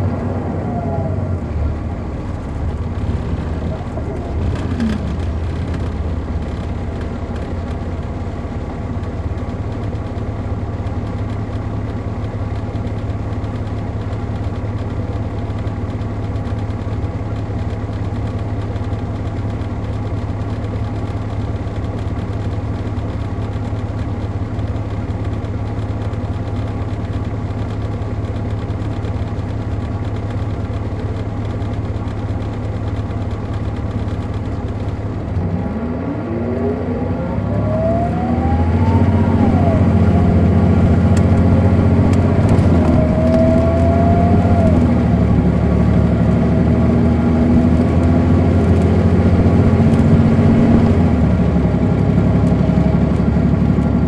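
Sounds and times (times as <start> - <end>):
diesel bus engine idling: 0.0 - 35.4.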